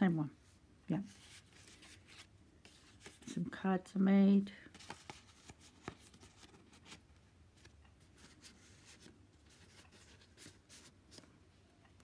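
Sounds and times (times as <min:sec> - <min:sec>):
paper pages rustling: 0:01.1 - 0:03.4, 0:04.6 - 0:11.4.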